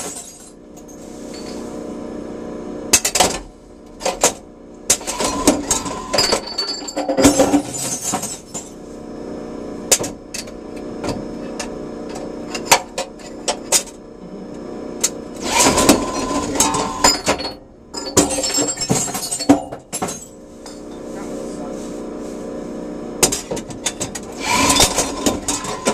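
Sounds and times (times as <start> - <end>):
vending machine motor hum: 0.0 - 25.9
glass bottles clattering: 5.1 - 8.8, 15.7 - 21.1.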